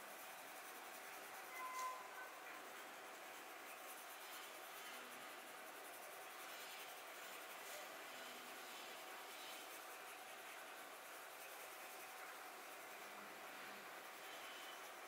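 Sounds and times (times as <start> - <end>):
pencil scratching on paper: 0.0 - 15.0
brief high tone with click: 1.5 - 2.2.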